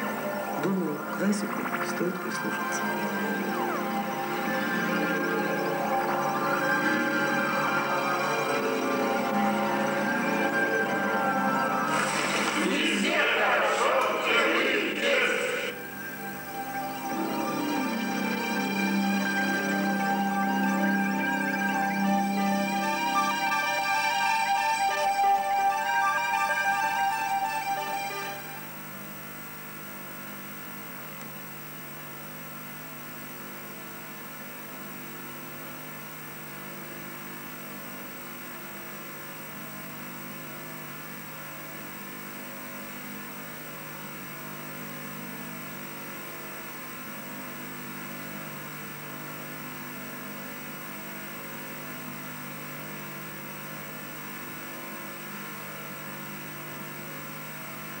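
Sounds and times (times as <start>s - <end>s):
recording hiss: 0.0s - 29.1s
electrical hum: 0.0s - 58.0s.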